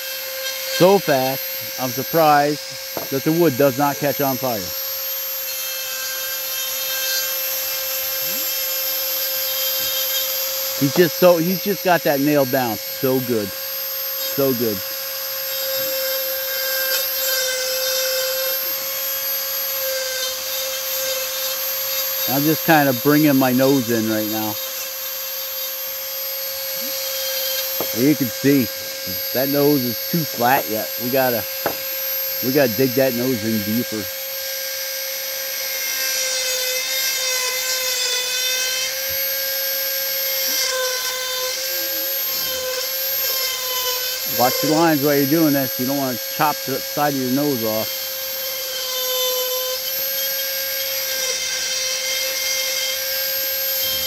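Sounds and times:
rotary tool grinding wood: 0.0s - 54.0s.

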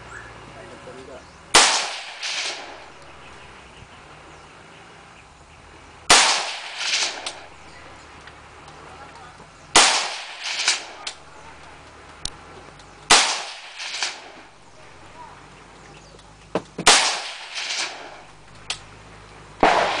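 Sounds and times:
rifle shots cracking: 1.5s - 3.4s, 6.1s - 7.9s, 9.8s - 11.8s, 13.1s - 15.0s, 16.8s - 18.9s, 19.6s - 20.0s.

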